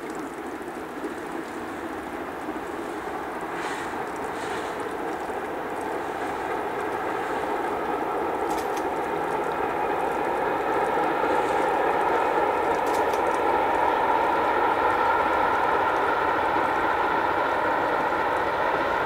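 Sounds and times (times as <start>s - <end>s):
steam train rumbling past: 0.0s - 19.0s.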